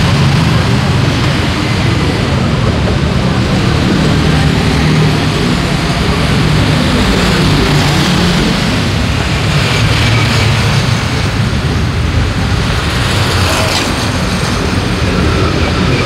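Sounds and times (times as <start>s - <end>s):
motorcycles passing: 0.0s - 16.0s
passing vehicles rumbling: 0.0s - 16.0s.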